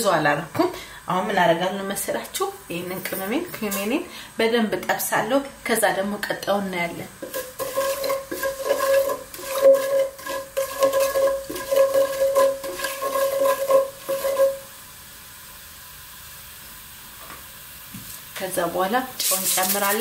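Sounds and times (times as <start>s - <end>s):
seeds sizzling in oil: 0.0s - 20.0s
wooden spatula scraping pot: 7.2s - 14.7s.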